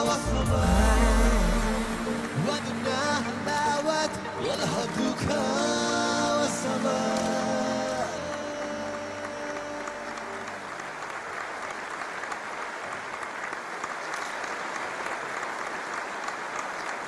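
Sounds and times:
song music: 0.0s - 11.2s
audience applauding: 8.2s - 17.0s.

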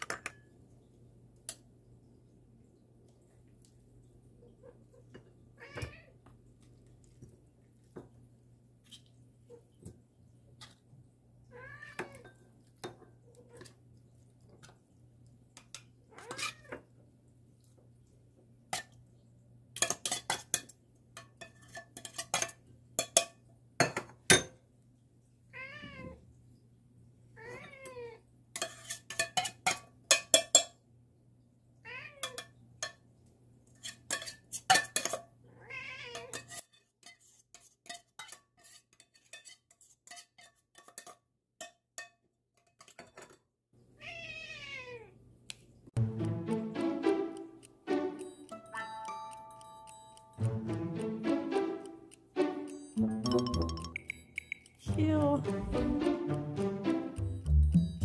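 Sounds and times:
cats meowing: 4.5s - 6.2s, 11.5s - 12.2s, 25.5s - 26.2s, 27.4s - 28.2s, 44.0s - 45.2s.

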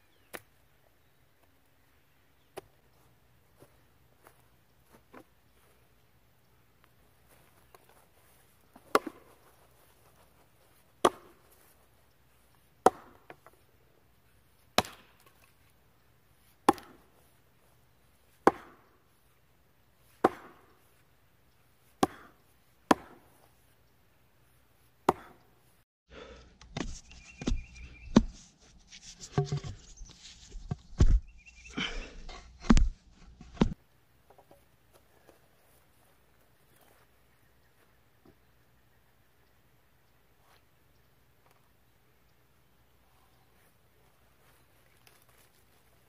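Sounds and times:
knocking and scraping: 26.6s - 33.8s.

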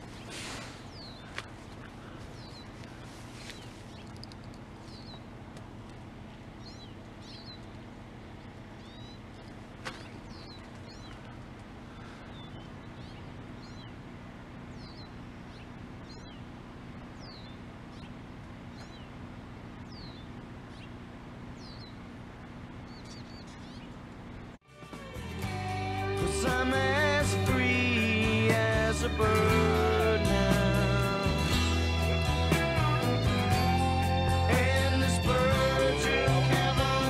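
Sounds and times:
small bird chirping: 0.0s - 5.3s, 6.5s - 22.2s, 22.8s - 24.1s
steady low hum: 0.0s - 24.6s.

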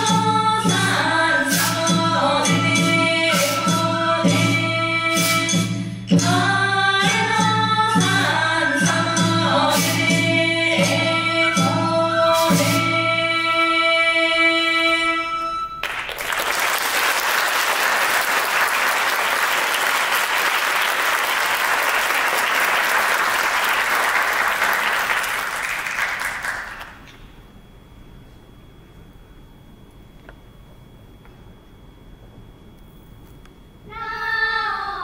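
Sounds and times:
audience clapping: 15.8s - 27.3s.

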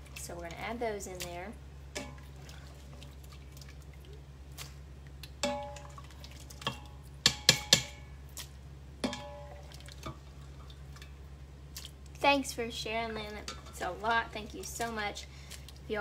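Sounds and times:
steady low hum: 0.0s - 16.0s
metal ladle clinking on pots: 5.4s - 6.0s, 6.6s - 8.0s, 9.0s - 10.2s.

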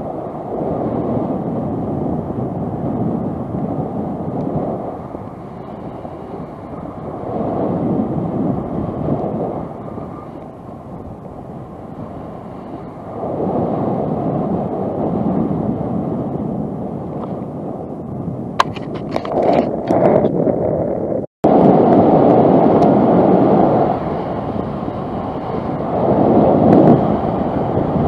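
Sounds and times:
wind rushing over microphone: 0.0s - 28.0s
sharp clicks and rattles: 18.6s - 20.0s.

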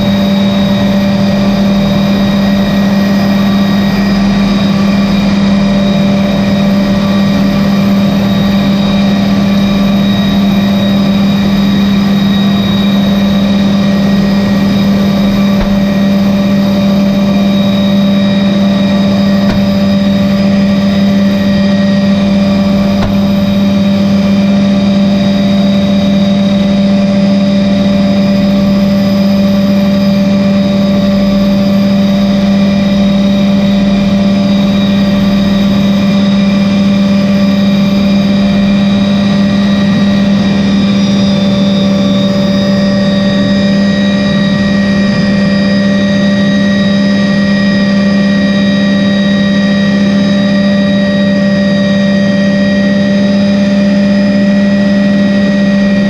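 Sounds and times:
helicopter engine and rotor hum: 0.0s - 56.0s
high whining tones: 8.3s - 28.6s.

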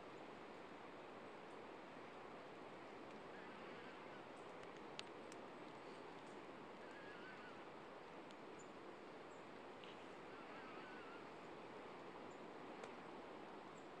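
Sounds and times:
faint outdoor background noise: 0.0s - 14.0s
distant bird calls: 3.3s - 4.5s, 5.8s - 11.6s.

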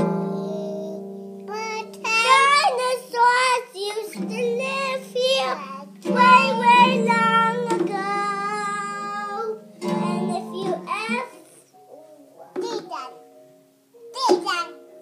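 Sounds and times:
acoustic guitar strummed: 0.0s - 11.3s
child singing: 0.0s - 13.2s, 14.0s - 15.0s.

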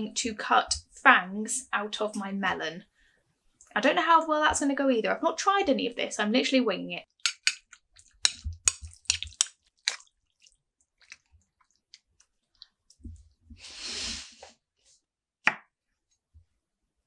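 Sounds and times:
jelly squelching: 7.1s - 13.4s.

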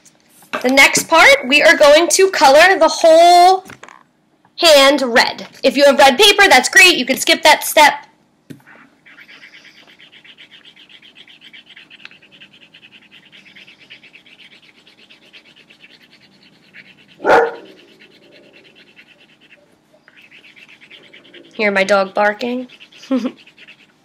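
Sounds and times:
colouring tool scratching on paper: 9.0s - 24.0s
dog barking loudly: 17.2s - 18.4s.

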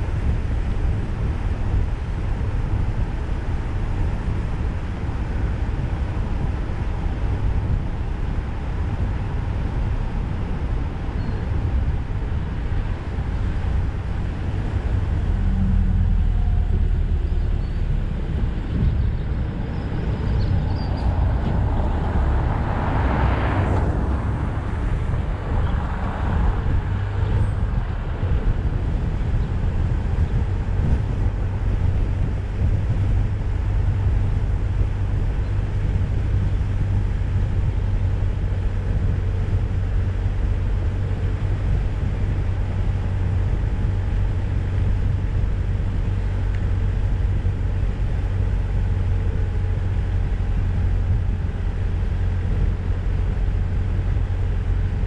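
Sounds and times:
car engine and tyres rumbling: 0.0s - 55.0s
rushing swell: 14.4s - 28.6s.

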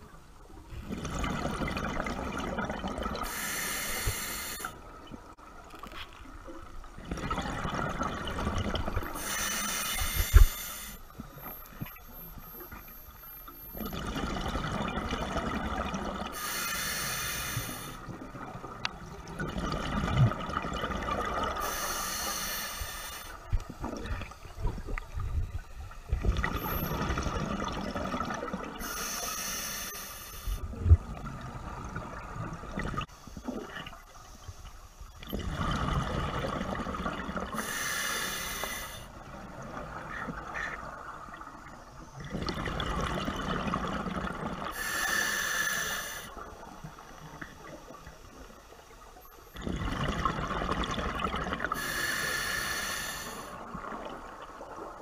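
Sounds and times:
exhaled air bubbling: 0.7s - 5.4s, 6.8s - 29.2s, 30.4s - 34.1s, 35.1s - 48.6s, 49.2s - 55.0s
regulator inhale hiss: 3.2s - 4.8s, 9.1s - 11.1s, 16.4s - 18.1s, 21.6s - 23.5s, 28.8s - 30.7s, 37.6s - 39.1s, 44.7s - 46.4s, 51.7s - 53.6s.

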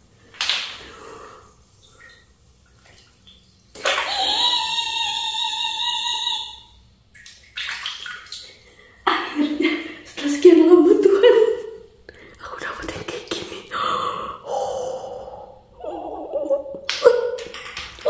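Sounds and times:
water running into bathtub: 0.0s - 11.8s.

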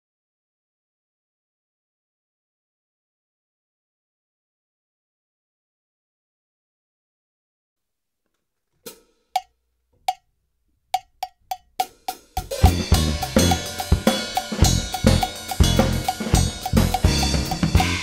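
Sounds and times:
metronome click ticking: 11.0s - 11.8s, 12.7s - 18.0s
drum kit playing: 11.0s - 18.0s
fusion backing track: 12.1s - 18.0s.

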